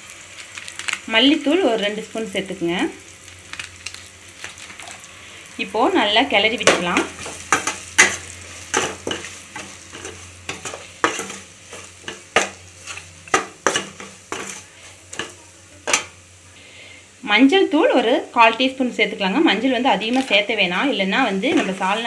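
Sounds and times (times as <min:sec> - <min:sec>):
oil sizzling: 0:00.0 - 0:22.0
metal spoon scraping steel pan: 0:12.8 - 0:16.1.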